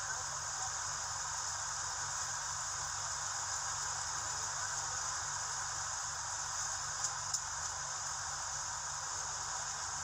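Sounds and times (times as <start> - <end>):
rain falling steadily: 0.0 - 10.0
faint ticks: 6.6 - 7.8.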